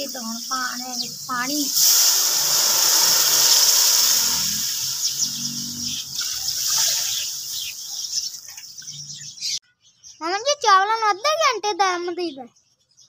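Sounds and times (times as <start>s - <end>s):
water hissing in hot oil: 0.0s - 8.5s.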